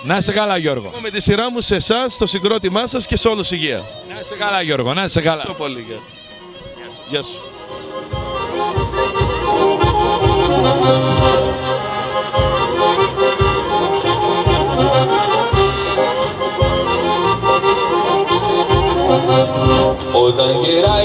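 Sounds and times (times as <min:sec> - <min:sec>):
accordion playing folk tune: 0:00.0 - 0:21.0
bass beat: 0:08.1 - 0:21.0.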